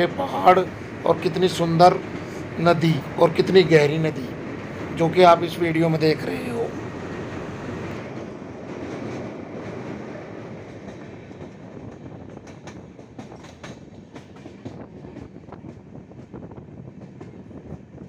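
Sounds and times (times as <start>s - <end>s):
train wheels rumbling on track: 0.0s - 18.0s
wheels clicking over rail joints: 6.4s - 15.8s.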